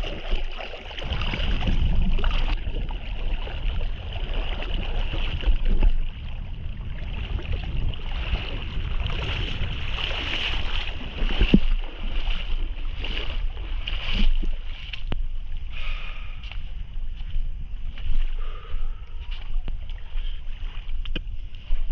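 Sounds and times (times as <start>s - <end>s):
sea water sloshing and splashing: 0.0s - 16.4s, 17.6s - 21.9s
wind buffeting microphone: 0.0s - 21.9s.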